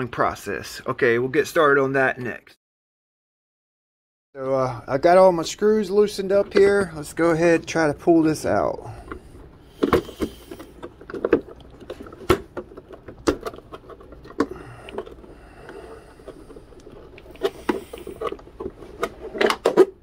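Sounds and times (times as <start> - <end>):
clicks and knocks of handling: 9.8 - 19.9.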